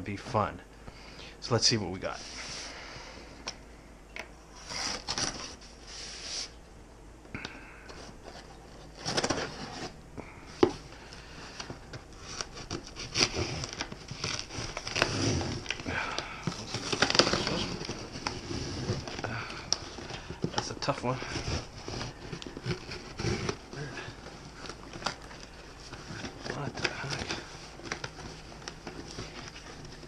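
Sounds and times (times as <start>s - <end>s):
scraping on cardboard: 11.4s - 15.8s, 21.2s - 25.2s.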